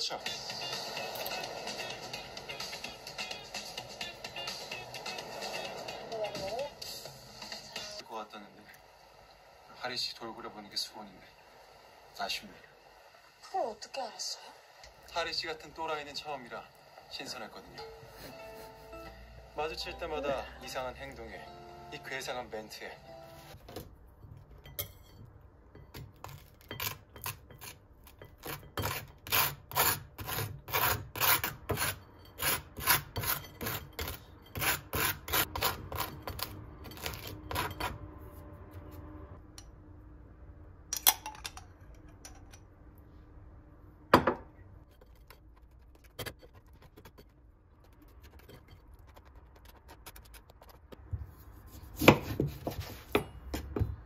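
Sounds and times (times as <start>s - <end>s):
knife scraping butter on toast: 26.2s - 37.9s
knife cutting onto wooden board: 51.9s - 53.2s.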